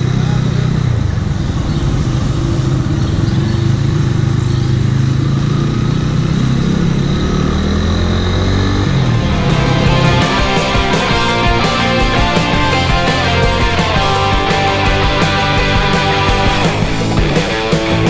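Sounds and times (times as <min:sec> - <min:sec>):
motorcycle engine pulling away: 0:00.0 - 0:18.0
music: 0:08.8 - 0:18.0.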